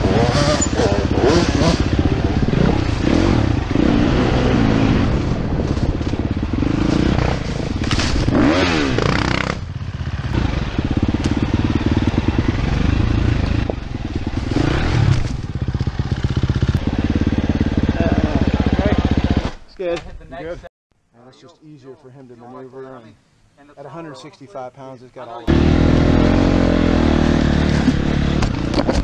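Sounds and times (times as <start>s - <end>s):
dirt bike engine revving: 0.0s - 19.6s, 25.5s - 29.0s.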